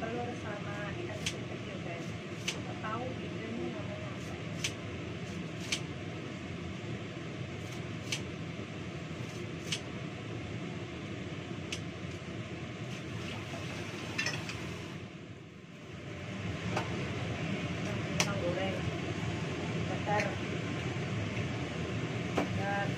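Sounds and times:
fan-like hum: 0.0 - 22.9
bowl and utensils clinking: 14.1 - 14.6.

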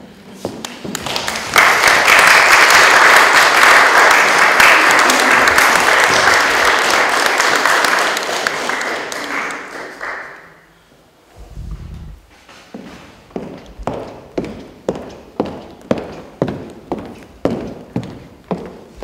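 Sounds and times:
audience applauding: 0.9 - 10.7.

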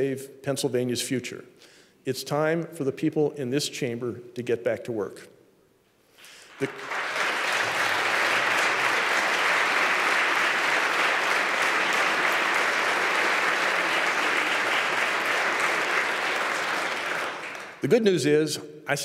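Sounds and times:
crowd applauding: 6.4 - 17.9.

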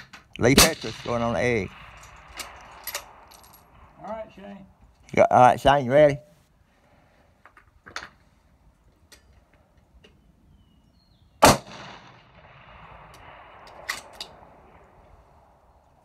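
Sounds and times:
rifle shot: 0.5 - 4.1, 11.4 - 15.6.

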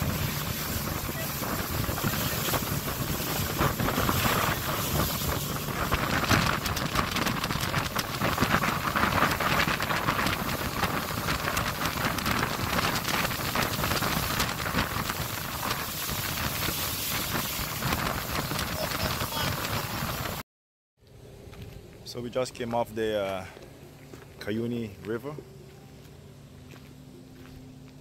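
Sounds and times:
boat motor running: 0.0 - 20.4
water rushing past hull: 0.0 - 20.4
wind buffeting microphone: 0.0 - 20.4.

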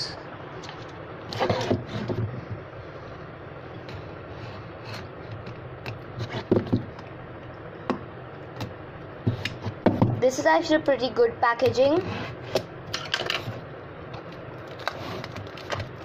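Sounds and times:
steady background noise: 0.0 - 16.0
plastic wrap scratching and crinkling: 14.6 - 16.0.

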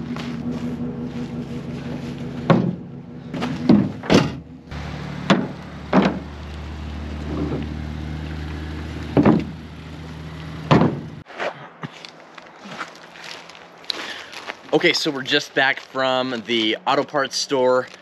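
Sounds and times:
steady low hum: 0.0 - 7.6.

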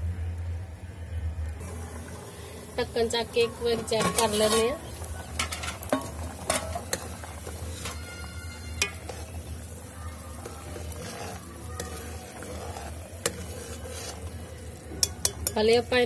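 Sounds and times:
curry bubbling sizzle: 0.0 - 16.0
low steady hum: 0.0 - 16.0
ladle clinking on pot: 5.3 - 9.4, 14.9 - 15.7.

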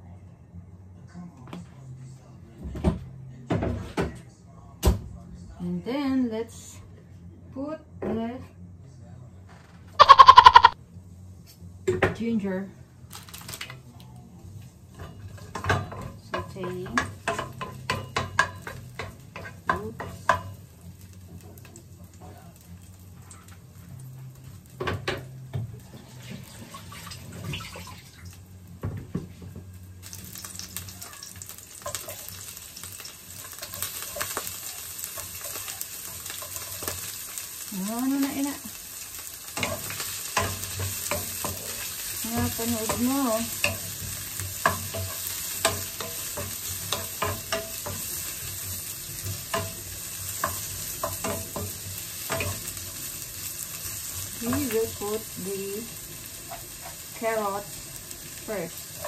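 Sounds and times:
onions sizzling in oil: 10.0 - 10.8, 14.5 - 59.0.

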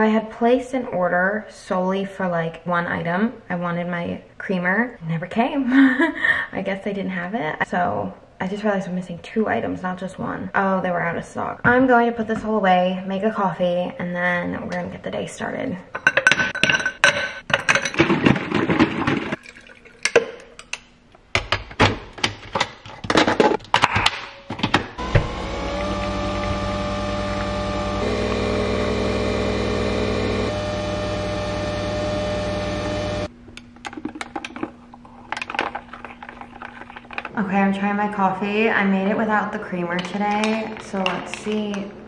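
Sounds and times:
coffee machine running: 25.0 - 33.3.

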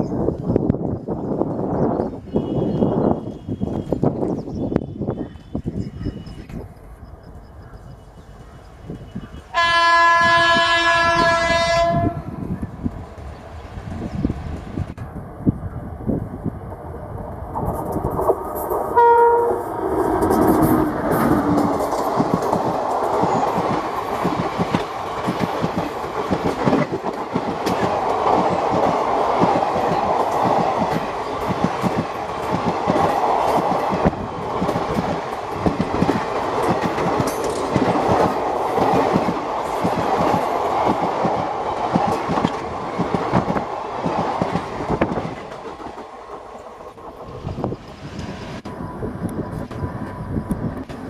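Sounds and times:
train wheels clattering over joints: 20.0 - 46.6.

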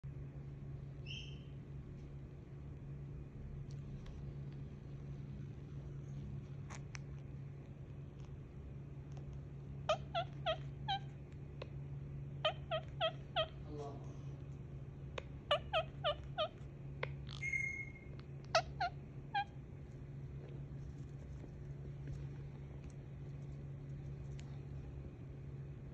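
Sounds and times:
parakeet harsh calls: 9.9 - 11.1, 12.4 - 13.7, 15.4 - 16.6, 17.2 - 19.6.

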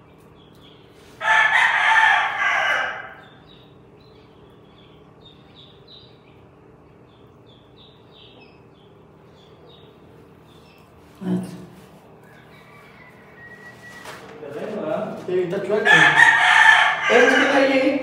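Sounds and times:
rooster crowing: 1.2 - 3.4, 12.2 - 14.2, 15.8 - 18.0.

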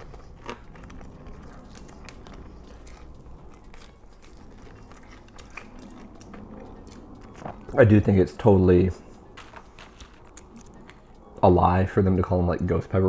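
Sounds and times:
chewing fried chicken: 0.0 - 8.0.

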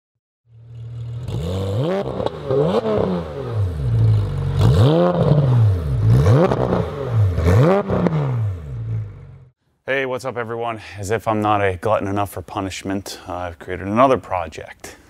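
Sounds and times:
car engine idling and revving: 0.5 - 9.6.

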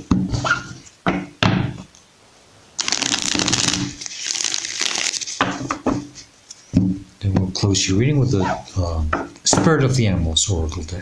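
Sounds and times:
cards being shuffled: 2.8 - 5.7.

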